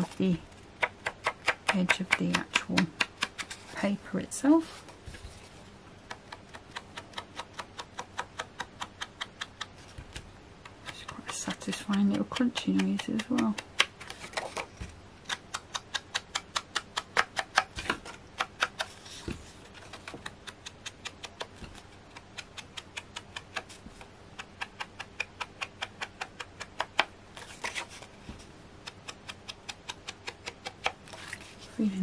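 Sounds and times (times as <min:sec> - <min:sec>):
ink dauber tapping cardstock: 0:06.0 - 0:27.1.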